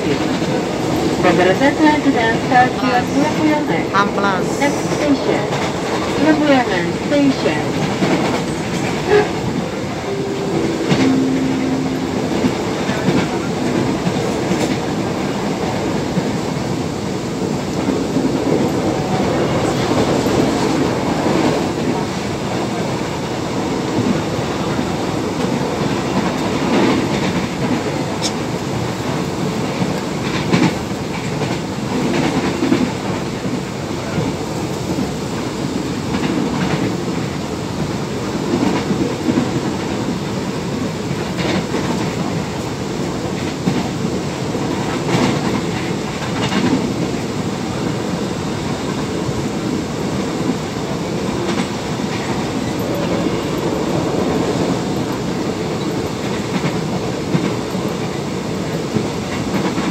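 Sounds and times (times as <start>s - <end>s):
electric train running: 43.3s - 59.9s.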